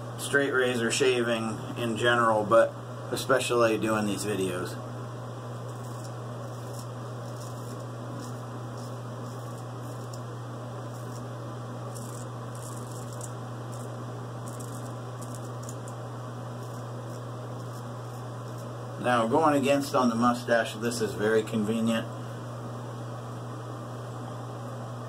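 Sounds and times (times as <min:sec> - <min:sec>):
steady low hum: 0:00.0 - 0:25.0
razor scraping stubble: 0:05.6 - 0:18.8.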